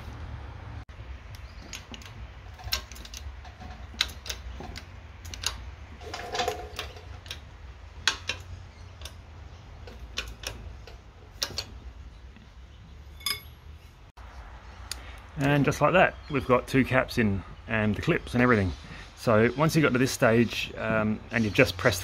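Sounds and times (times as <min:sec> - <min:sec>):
metal clicks and ticks: 0:01.2 - 0:12.5
metal creak: 0:01.4 - 0:11.9.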